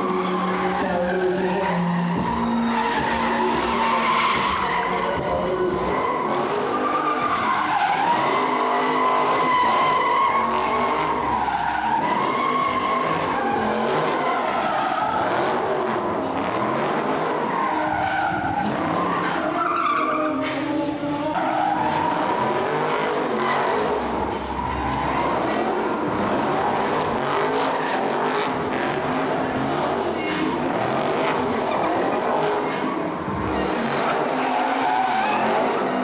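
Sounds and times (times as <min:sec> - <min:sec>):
car engine noise: 0:00.0 - 0:36.0
car tyres squealing: 0:00.0 - 0:36.0.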